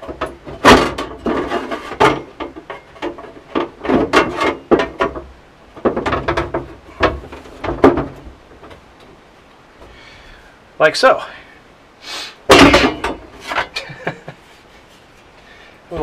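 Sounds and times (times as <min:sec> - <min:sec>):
metal brace knocking and scraping: 0:00.0 - 0:09.1, 0:12.5 - 0:14.0.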